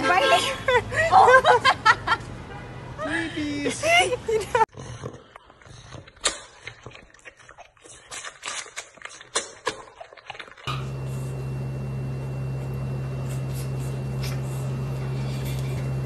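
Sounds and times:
faint high whine: 0:10.7 - 0:16.0
steady low hum: 0:10.7 - 0:16.0.

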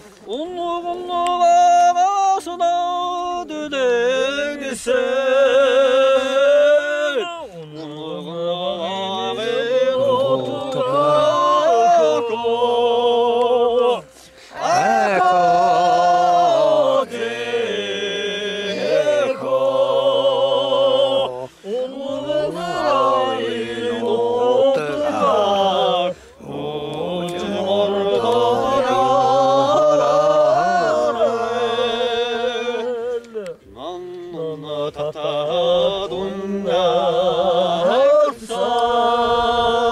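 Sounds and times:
person singing unaccompanied: 0:00.0 - 0:39.9
singer breathing: 0:14.0 - 0:14.6, 0:21.4 - 0:21.7, 0:26.1 - 0:26.4.

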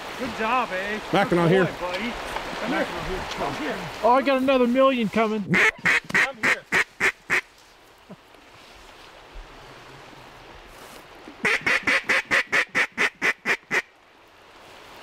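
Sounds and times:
mallard quacking: 0:05.5 - 0:07.5, 0:11.4 - 0:13.9.

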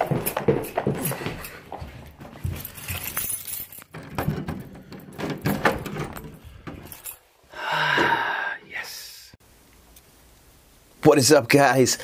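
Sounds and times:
keys jangling at door lock: 0:00.0 - 0:07.3.

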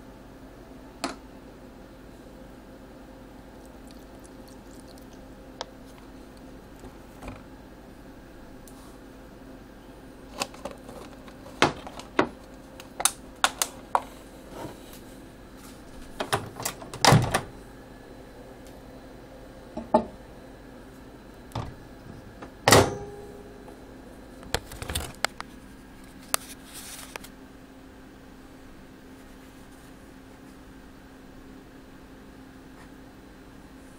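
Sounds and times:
steady low hum: 0:00.0 - 0:33.9
microwave door clicks and knocks: 0:16.2 - 0:17.5, 0:21.5 - 0:21.8, 0:22.4 - 0:23.3.

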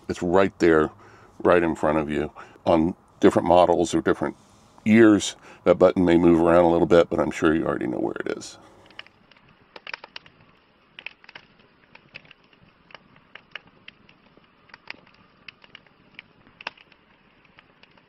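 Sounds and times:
campfire hiss: 0:00.0 - 0:18.0
campfire pops and snaps: 0:08.6 - 0:18.0.

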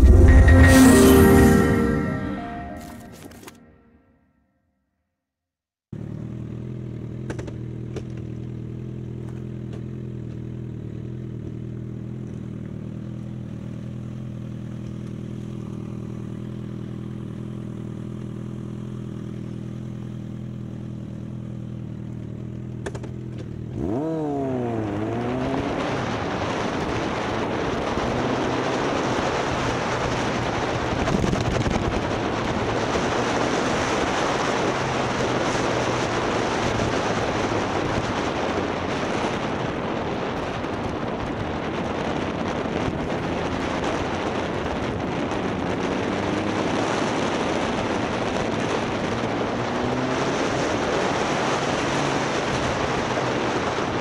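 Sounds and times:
motorcycle engine: 0:05.9 - 0:54.0
wind noise: 0:25.0 - 0:54.0.

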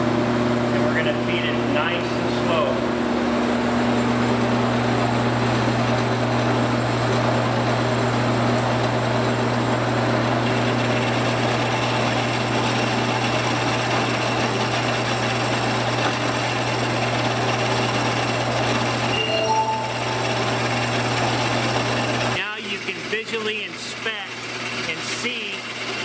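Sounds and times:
band saw motor hum: 0:09.4 - 0:26.0
faint high tone: 0:19.1 - 0:20.9.

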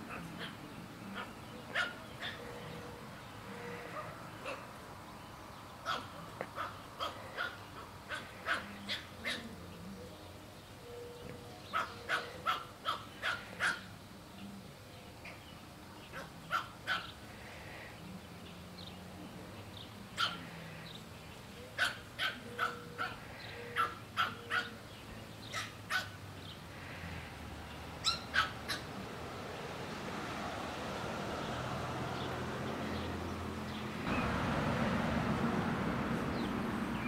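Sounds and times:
puppy yapping: 0:11.7 - 0:13.9, 0:21.8 - 0:24.8, 0:25.5 - 0:26.2, 0:28.0 - 0:28.9.

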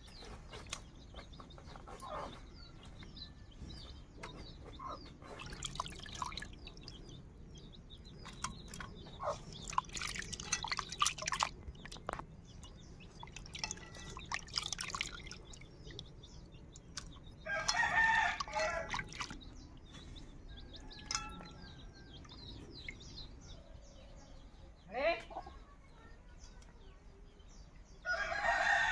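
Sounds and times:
small birds chirping: 0:00.0 - 0:28.9
hands washing fish in water: 0:05.2 - 0:07.1, 0:08.1 - 0:23.1
rooster crowing: 0:17.5 - 0:18.9, 0:28.1 - 0:28.9.

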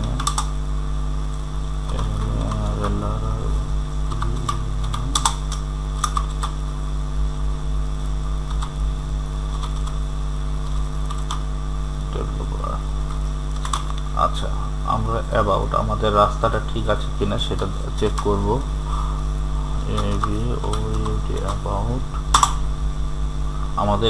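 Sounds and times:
steady electrical hum: 0:00.0 - 0:24.0.

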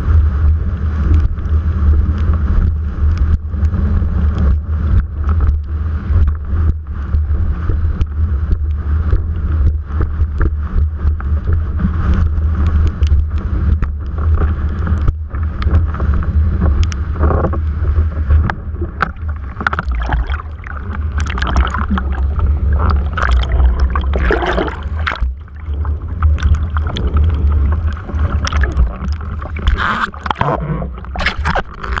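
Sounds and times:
wind buffeting camera: 0:00.0 - 0:32.0
water splashing against board: 0:11.4 - 0:32.0.

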